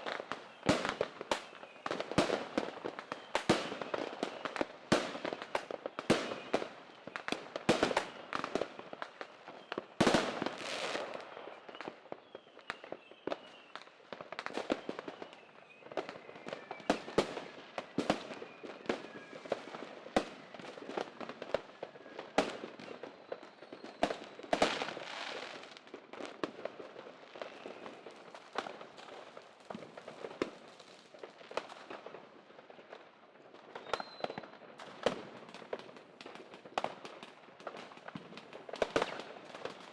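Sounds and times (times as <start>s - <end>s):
firework crackle: 0.0s - 39.9s
fireworks bangs: 9.6s - 12.0s, 33.7s - 39.9s.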